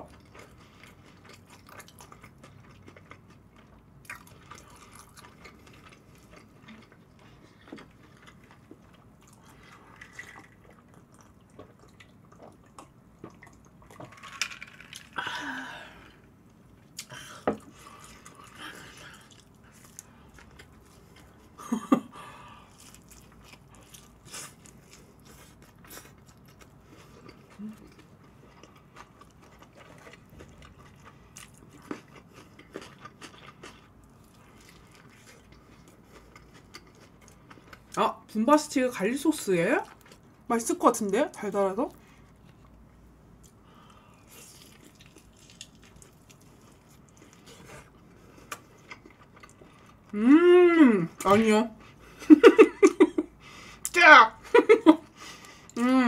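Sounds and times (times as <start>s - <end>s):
soft chewing: 0.0s - 15.1s, 16.0s - 38.0s, 39.8s - 40.5s, 41.9s - 50.2s.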